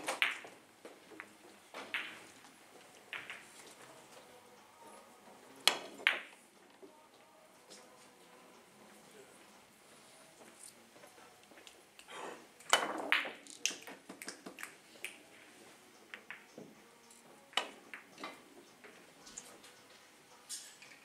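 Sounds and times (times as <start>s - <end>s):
billiard balls clicking: 0.0s - 3.8s, 5.7s - 6.4s, 12.6s - 16.8s, 17.5s - 19.6s.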